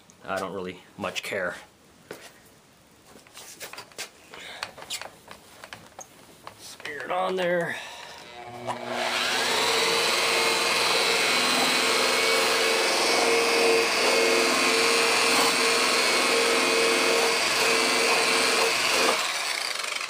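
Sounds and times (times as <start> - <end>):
electric buffer motor whining: 7.9 - 20.0.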